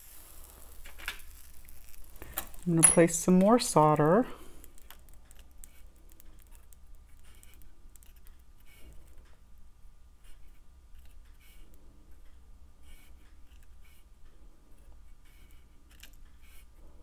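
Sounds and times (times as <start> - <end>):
low steady hum: 0.0 - 17.0
metal tweezers clicking and scraping: 4.6 - 8.7.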